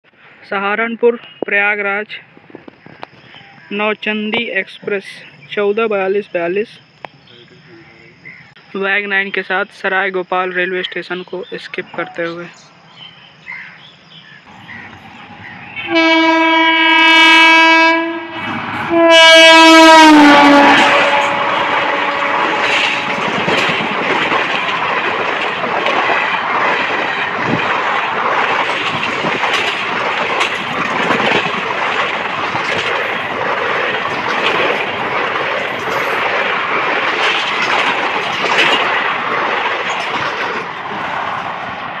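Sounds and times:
train wheels clattering over rail joints: 0:20.4 - 0:41.4.

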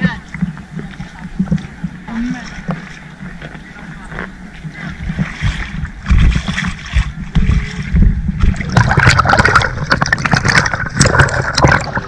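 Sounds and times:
sea water sloshing and splashing: 0:04.7 - 0:12.0.

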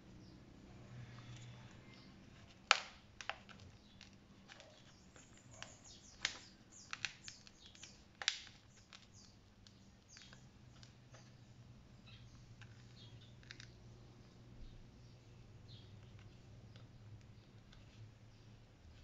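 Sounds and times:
plastic clicks and snaps: 0:01.3 - 0:11.3, 0:12.6 - 0:13.8.

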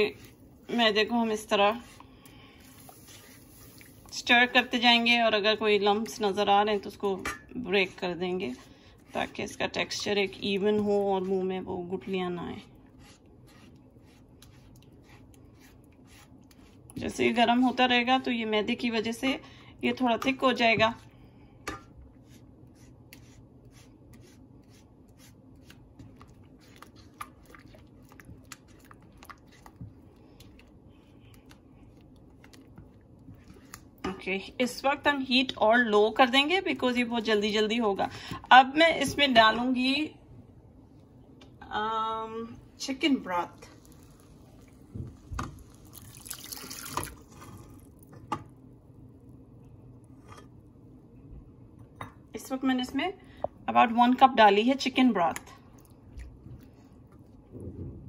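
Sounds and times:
spatula stirring sauce in pan: 0:00.0 - 0:05.2, 0:05.8 - 0:18.0, 0:21.7 - 0:34.2
broth pouring and splashing: 0:43.6 - 0:48.0.

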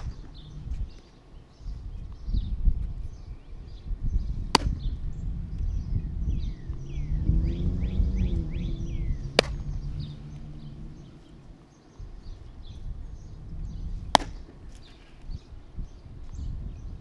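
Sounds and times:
baseball popping into leather mitt: 0:04.5 - 0:04.9, 0:09.4 - 0:09.6, 0:14.1 - 0:14.5.

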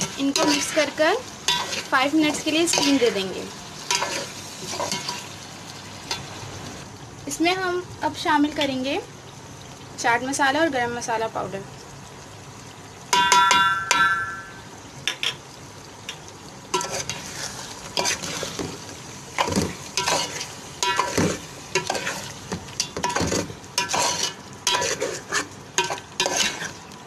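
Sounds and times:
spatula scraping a pot: 0:00.0 - 0:03.2, 0:03.9 - 0:05.2, 0:16.8 - 0:18.8, 0:19.4 - 0:26.8
low sizzle: 0:00.0 - 0:27.0
ringing clank: 0:13.2 - 0:14.7.

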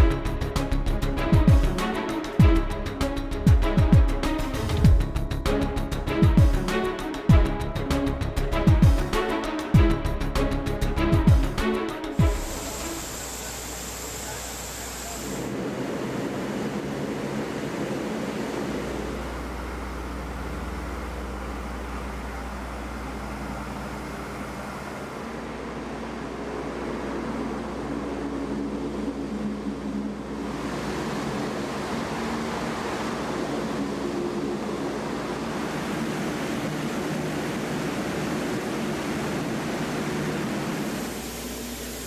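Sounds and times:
hovercraft engines roaring: 0:00.0 - 0:42.0
water spray: 0:12.2 - 0:15.5, 0:39.7 - 0:42.0
wind: 0:15.4 - 0:42.0.

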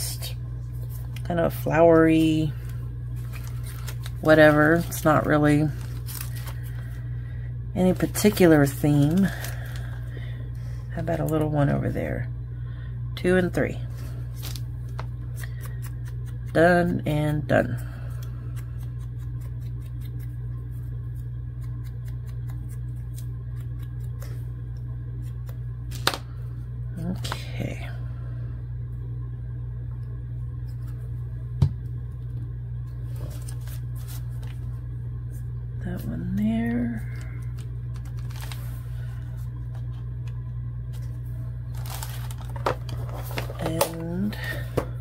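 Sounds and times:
steady low hum: 0:00.0 - 0:45.0
paper rustling: 0:02.6 - 0:06.9, 0:14.3 - 0:15.1, 0:33.1 - 0:34.8, 0:37.6 - 0:39.1, 0:40.9 - 0:44.0.

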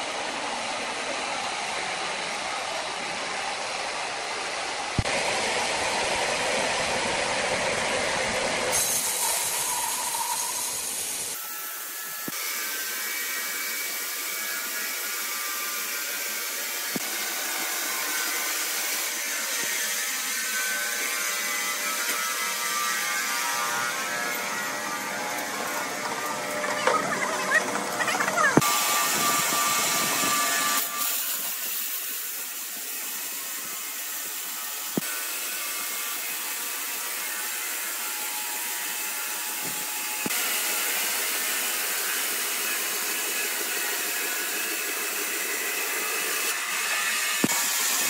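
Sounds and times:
thin steady whine: 0:00.0 - 0:12.2
band sawmill running: 0:00.0 - 0:48.0.

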